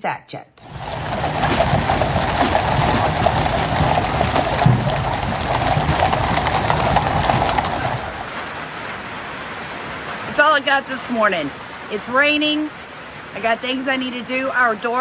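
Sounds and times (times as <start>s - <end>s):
horses hooves clip-clopping on road: 0.6s - 8.6s.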